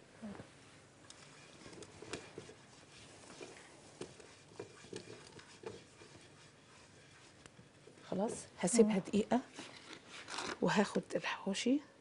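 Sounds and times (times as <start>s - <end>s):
utensil tapping and scraping pan: 1.3s - 8.0s.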